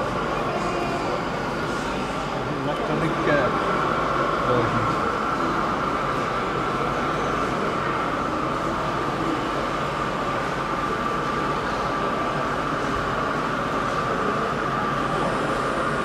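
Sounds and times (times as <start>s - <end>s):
model train running drone: 0.0s - 16.0s.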